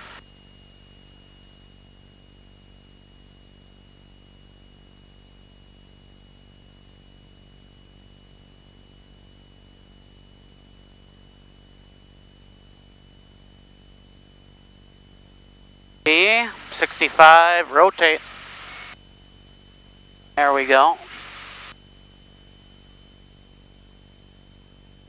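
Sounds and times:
aircraft engine hum through intercom: 0:16.1 - 0:18.2, 0:20.4 - 0:21.2
high whine: 0:16.1 - 0:19.0, 0:20.4 - 0:21.8.

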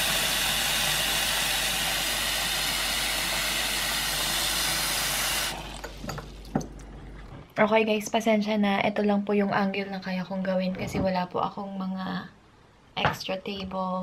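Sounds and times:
tap water running into a glass bowl: 0:00.0 - 0:06.8.

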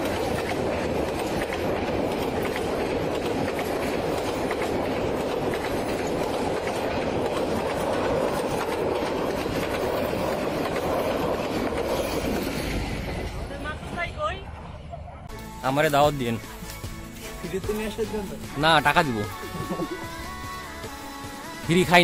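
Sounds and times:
rapid clicking of train wheels: 0:00.0 - 0:14.6
train wheels rumbling on rails: 0:00.0 - 0:22.0.

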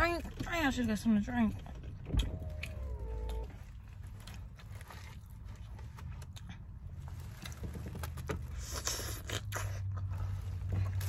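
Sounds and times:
low car cabin hum: 0:00.0 - 0:08.8.

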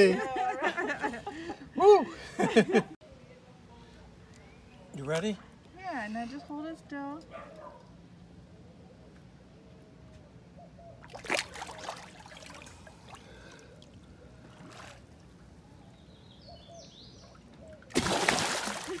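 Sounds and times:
fish splashing water: 0:11.1 - 0:15.2, 0:17.8 - 0:19.0.

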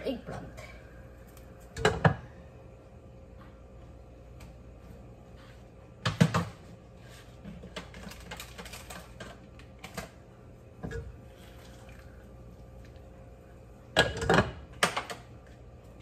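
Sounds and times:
kitchen clatter: 0:14.0 - 0:15.3.

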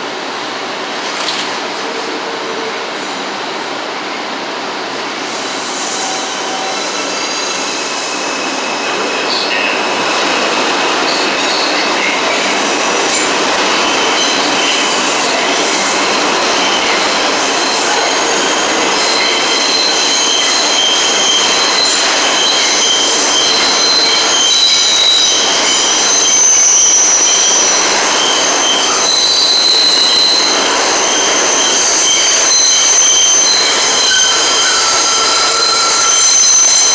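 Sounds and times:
train wheels rumbling on rails: 0:00.0 - 0:36.9
high-pitched wheel squeal: 0:17.9 - 0:36.9.

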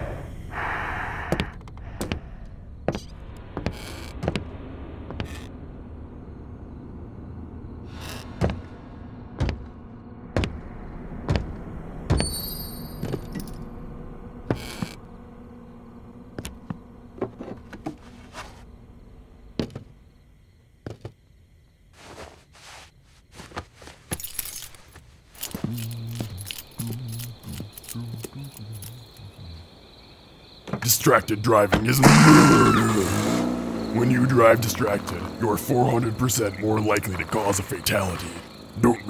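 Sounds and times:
low steady hum: 0:08.6 - 0:20.2.

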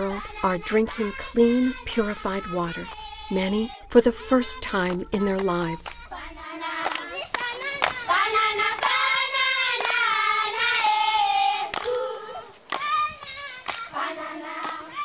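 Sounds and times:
children singing: 0:00.0 - 0:04.0, 0:04.7 - 0:15.0
hand claps: 0:04.8 - 0:06.1, 0:06.8 - 0:11.0, 0:11.7 - 0:12.0, 0:12.7 - 0:14.0, 0:14.6 - 0:15.0.

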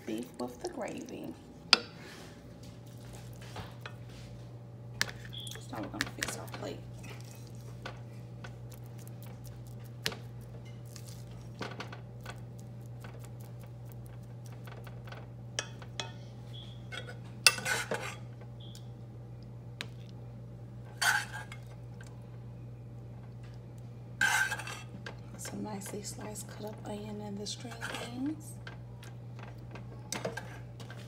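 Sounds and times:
steady low hum: 0:00.0 - 0:31.0
metal spoon scraping a plate: 0:16.9 - 0:18.2, 0:20.9 - 0:21.6, 0:24.2 - 0:24.9, 0:27.7 - 0:28.3.

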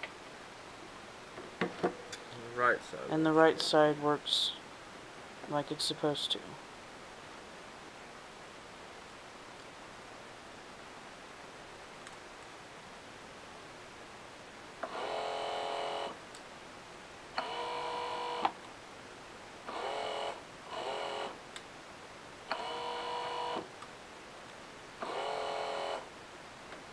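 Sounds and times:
electric motor whine: 0:17.4 - 0:18.5, 0:22.6 - 0:23.6, 0:25.0 - 0:26.0.

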